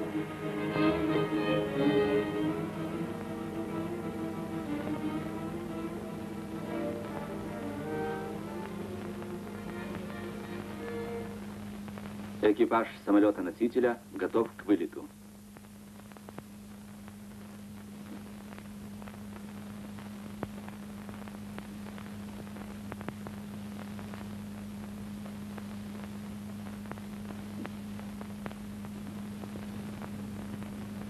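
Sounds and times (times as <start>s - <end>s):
low electrical hum: 0.0s - 31.0s
clicks and crackles: 15.5s - 31.0s.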